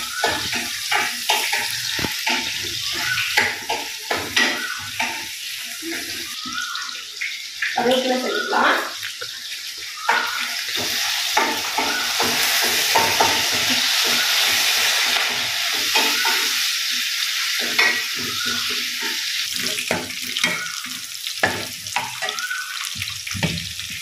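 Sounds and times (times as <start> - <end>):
shallots sizzling in oil: 0.0 - 24.0
ladle scraping and tapping pan: 0.1 - 5.4.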